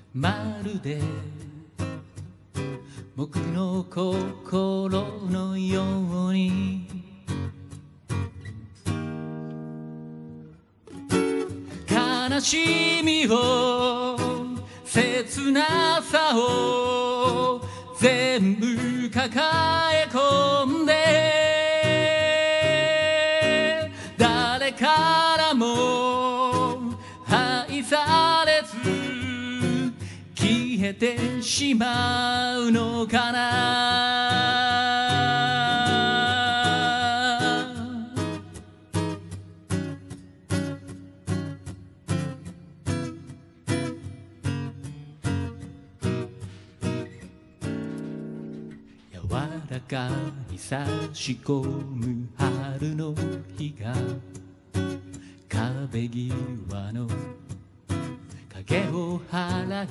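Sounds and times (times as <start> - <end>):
man singing with vibrato: 0.0 - 7.8, 11.6 - 39.4, 49.0 - 59.9
acoustic guitar: 0.0 - 59.9.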